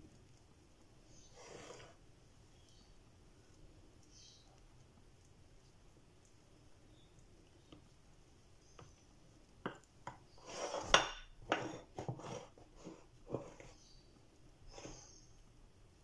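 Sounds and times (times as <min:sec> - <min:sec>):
spatula scraping glass dish: 0:01.2 - 0:02.0, 0:10.4 - 0:13.8.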